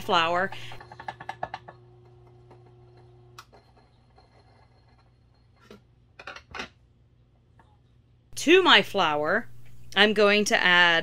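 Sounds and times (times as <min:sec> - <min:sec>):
knocks and clinks on kitchen counter: 0:00.8 - 0:04.0, 0:05.6 - 0:06.8.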